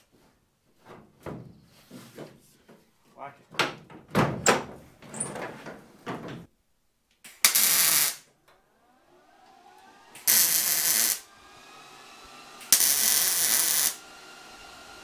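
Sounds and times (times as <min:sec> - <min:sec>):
welder arc noise: 0:07.3 - 0:15.0.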